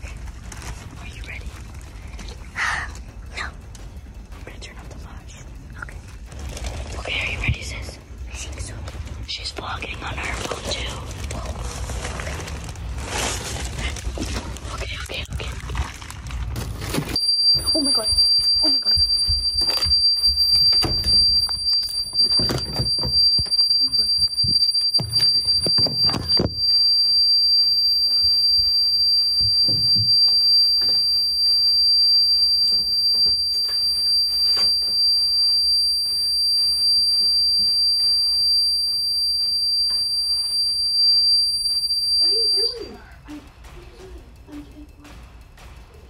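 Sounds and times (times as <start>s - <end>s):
alarm high-pitched tone: 16.9s - 43.2s.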